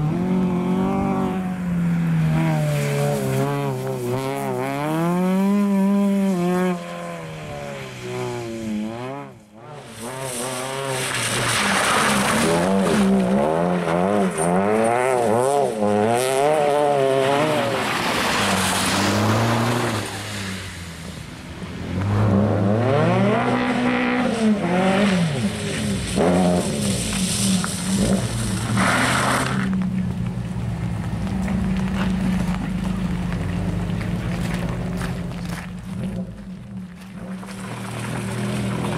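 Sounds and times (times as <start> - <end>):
rally car engine revving hard: 2.2 - 20.2, 22.0 - 29.8.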